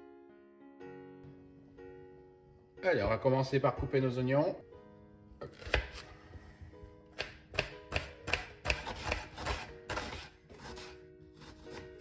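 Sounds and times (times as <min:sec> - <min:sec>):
knife chopping on cutting board: 0:05.4 - 0:06.1, 0:07.1 - 0:12.0.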